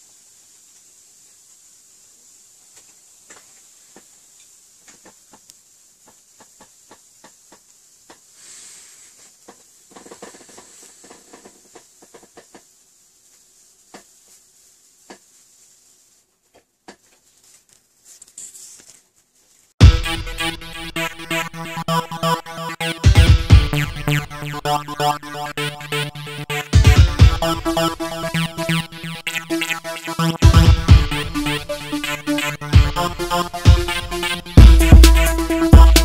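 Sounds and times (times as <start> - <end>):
faint steady hiss: 0.0 - 19.8
short rustle: 13.1 - 19.8.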